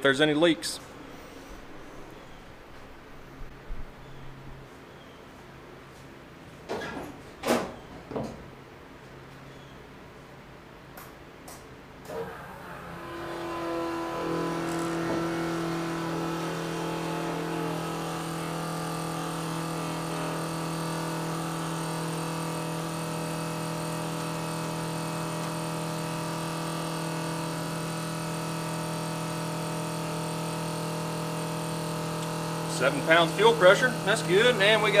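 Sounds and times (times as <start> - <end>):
electric fuel pump whining: 12.0 - 35.0.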